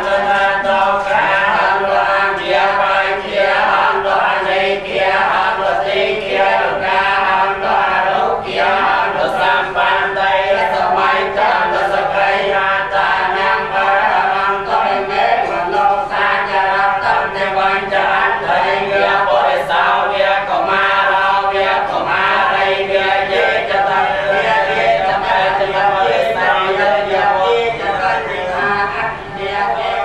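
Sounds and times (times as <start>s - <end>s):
men chanting in unison: 0.0s - 30.0s.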